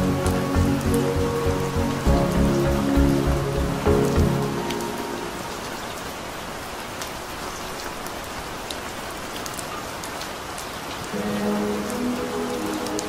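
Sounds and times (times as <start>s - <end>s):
soft sustained music notes: 0.0s - 6.0s, 11.1s - 13.0s
close raindrops ticking: 0.0s - 13.0s
steady rain: 0.0s - 13.0s.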